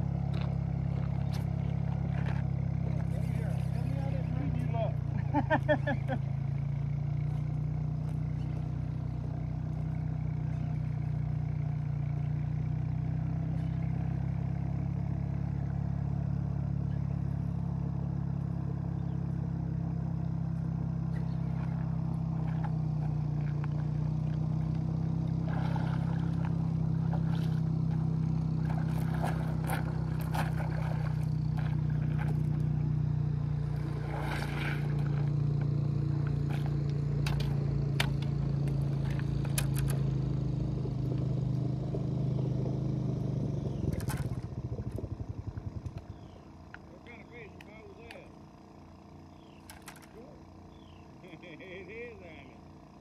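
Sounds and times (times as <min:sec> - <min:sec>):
low mechanical hum: 0:00.0 - 0:53.0
splashes and clatter: 0:25.4 - 0:32.7, 0:33.6 - 0:35.4.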